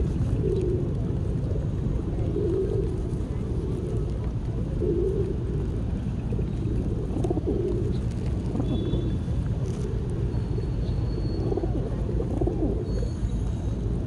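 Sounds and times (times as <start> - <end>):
pigeons cooing: 0.0 - 14.0.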